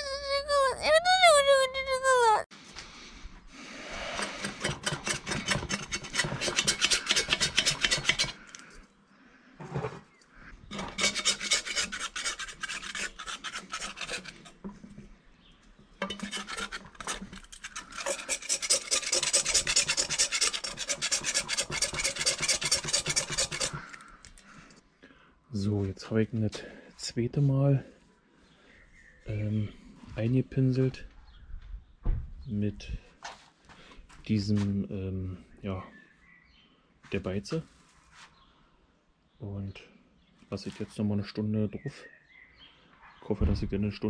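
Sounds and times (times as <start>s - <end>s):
paintbrush scrubbing on steel: 10.8s - 14.5s, 16.0s - 23.8s.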